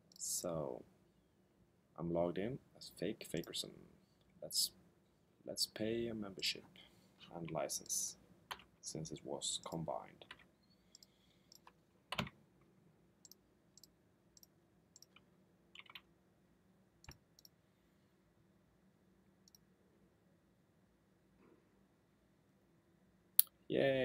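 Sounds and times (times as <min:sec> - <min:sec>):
computer keystrokes and mouse clicks: 0:09.6 - 0:12.4, 0:13.2 - 0:16.1, 0:17.0 - 0:17.6, 0:19.4 - 0:19.7.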